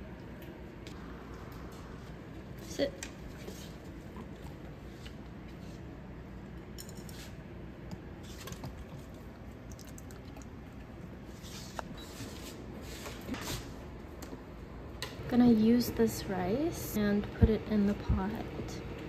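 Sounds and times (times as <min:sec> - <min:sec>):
kitchen hum: 0:00.0 - 0:19.0.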